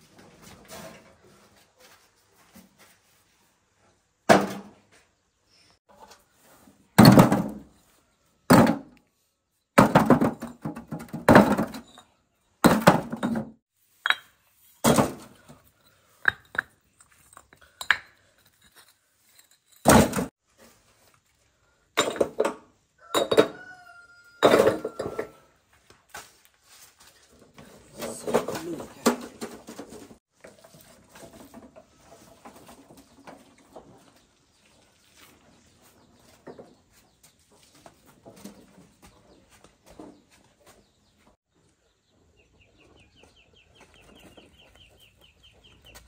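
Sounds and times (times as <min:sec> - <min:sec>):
hard objects thudding and clattering: 0:06.9 - 0:07.8, 0:08.5 - 0:09.0, 0:09.8 - 0:20.4, 0:21.9 - 0:23.6, 0:24.4 - 0:25.5, 0:27.4 - 0:34.0.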